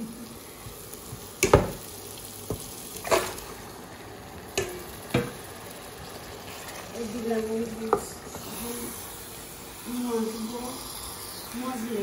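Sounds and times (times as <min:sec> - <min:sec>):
steady sizzle: 0:00.0 - 0:12.0
chicken pieces knocking into wok: 0:01.4 - 0:01.8, 0:04.6 - 0:05.4.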